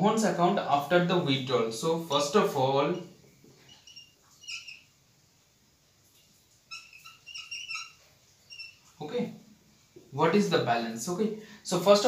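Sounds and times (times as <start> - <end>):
marker squeaking on whiteboard: 2.9 - 5.0, 6.6 - 9.0.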